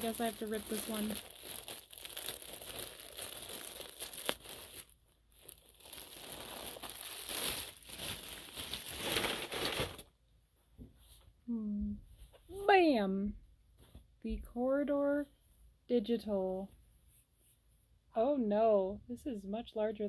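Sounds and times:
package being ripped open: 0.0 - 10.1
wrapping crinkling: 0.0 - 10.1.

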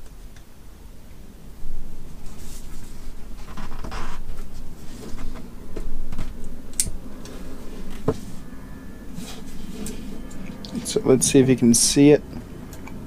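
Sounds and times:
plastic rubbing and scraping: 2.1 - 6.4.

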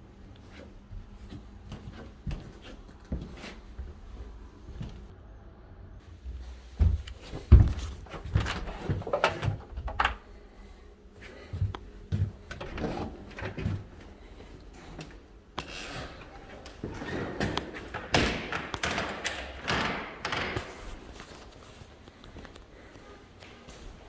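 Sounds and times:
footsteps: 0.4 - 5.1, 6.2 - 9.2, 20.6 - 24.0.

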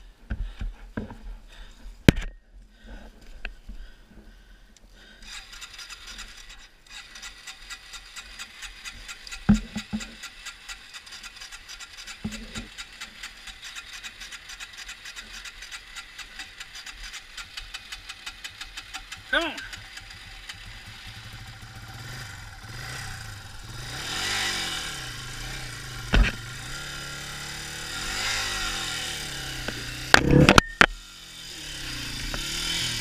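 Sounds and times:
motorcycle engine idling: 5.4 - 33.0.

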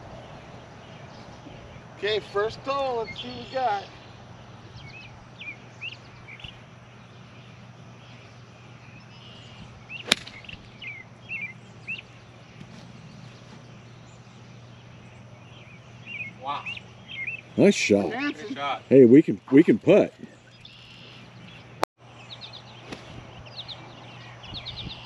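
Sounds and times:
small birds chirping: 0.0 - 25.0
golf club striking ball: 10.0 - 10.9.

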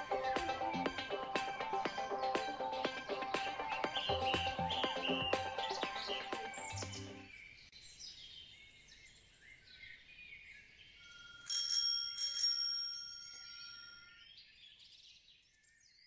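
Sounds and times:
faint birds chirping: 0.0 - 11.5
bicycle bell ringing: 11.4 - 14.2.

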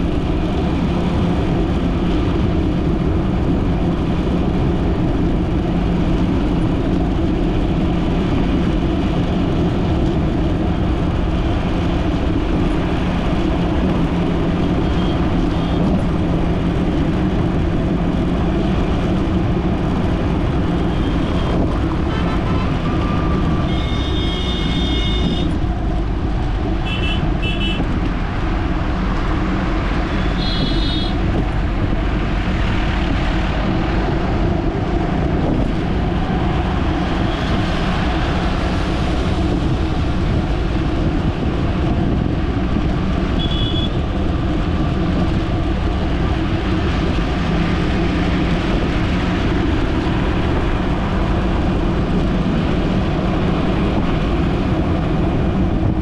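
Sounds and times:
car engine and tyre hum: 0.0 - 56.0
passing traffic: 0.0 - 56.0
vehicle horns honking: 20.9 - 25.6, 26.8 - 27.9, 30.2 - 31.2, 43.4 - 44.0.

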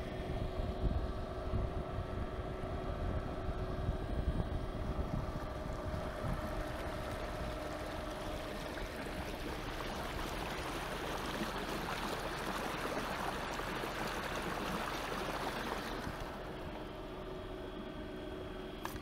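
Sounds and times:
water rushing along boat hull: 4.6 - 17.6.

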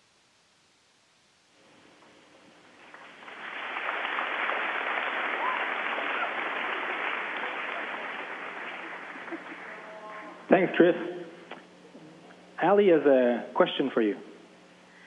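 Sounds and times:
crowd applauding: 2.8 - 10.5
faint whoops: 5.2 - 8.2.

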